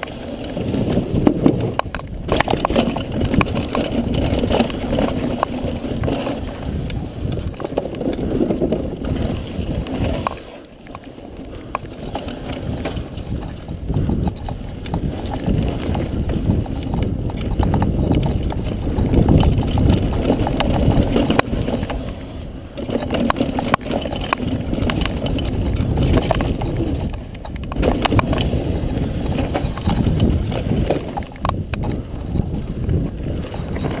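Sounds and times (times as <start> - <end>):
wind rushing on microphone: 0.0 - 10.5, 11.4 - 34.0
bike rattling and knocking: 0.0 - 34.0
bike tyre noise: 0.0 - 34.0.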